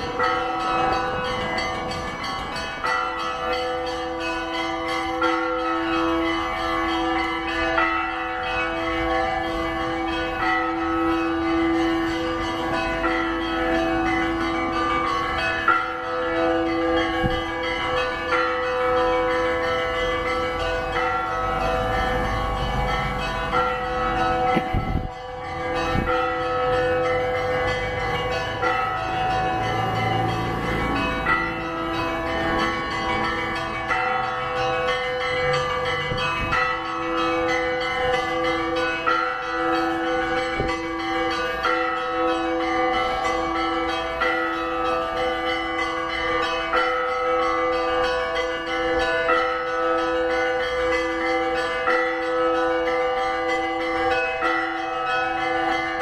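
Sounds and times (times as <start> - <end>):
church bells ringing: 0.0 - 56.0
low bell steady beat: 0.0 - 56.0.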